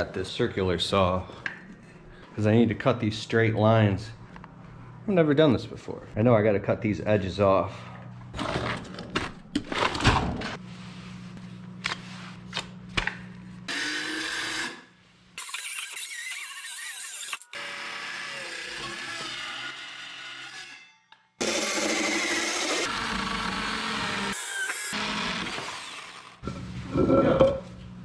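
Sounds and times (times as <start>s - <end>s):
circular saw cutting wood: 13.7s - 26.4s.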